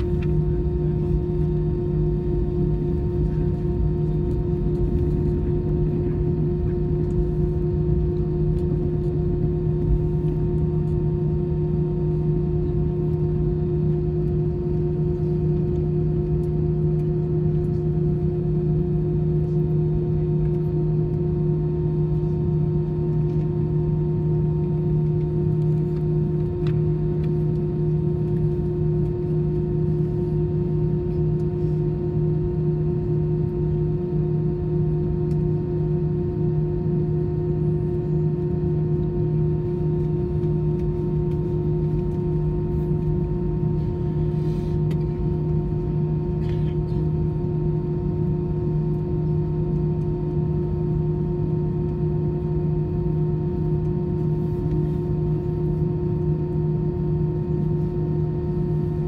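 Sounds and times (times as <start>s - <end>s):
airplane cabin engine hum: 0.0s - 59.0s.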